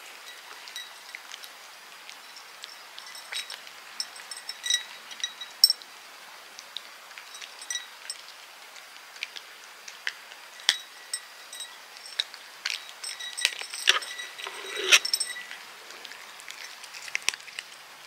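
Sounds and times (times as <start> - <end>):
cats eating treats: 11.9 - 18.0
treats clinking on ceramic saucers: 12.9 - 15.6.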